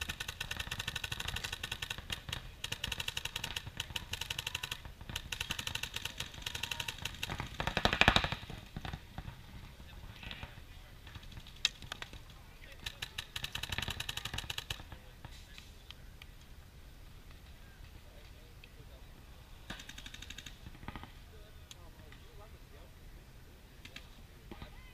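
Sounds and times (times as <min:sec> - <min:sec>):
paintball markers firing: 0:00.0 - 0:09.3, 0:10.2 - 0:16.5, 0:19.7 - 0:21.1.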